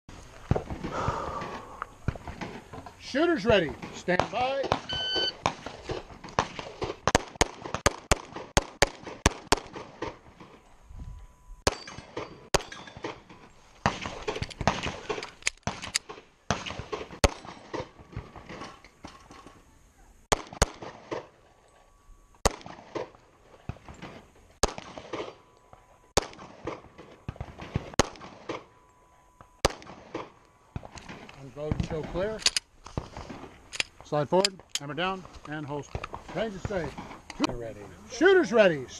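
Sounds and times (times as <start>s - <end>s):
pistol shots: 6.4s - 10.2s, 11.6s - 18.7s, 20.3s - 21.4s, 22.4s - 25.4s, 26.2s - 28.7s, 29.6s - 31.3s.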